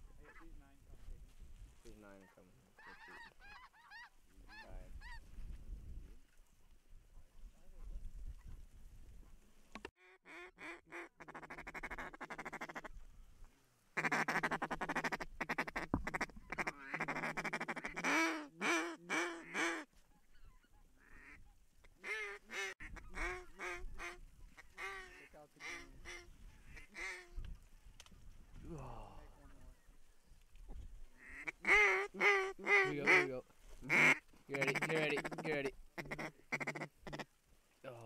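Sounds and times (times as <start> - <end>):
duck call quacks: 10.0 - 12.9, 14.0 - 19.9, 21.0 - 21.4, 22.0 - 27.3, 31.2 - 37.2
duck call buzzing chatter: 10.2 - 12.9, 14.0 - 19.9, 22.0 - 27.3, 31.2 - 33.3, 33.9 - 37.2.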